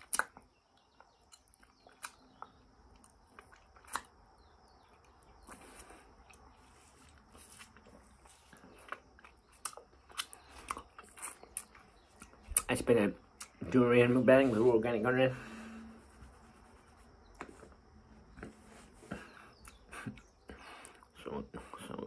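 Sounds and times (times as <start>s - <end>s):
man chewing with mouth open: 0.0s - 12.7s, 17.2s - 21.7s
lip-smacking and finger-sucking: 19.1s - 21.1s.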